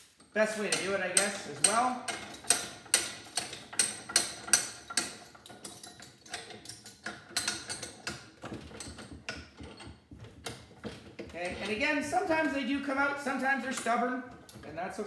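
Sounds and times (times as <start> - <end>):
metal taps and clinks: 0.7 - 11.8.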